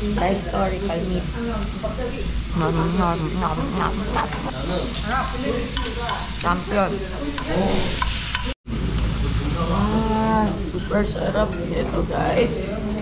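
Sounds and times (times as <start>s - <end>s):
meat sizzling in a hot pan: 0.0s - 8.6s
tongs turning meat: 2.6s - 8.5s.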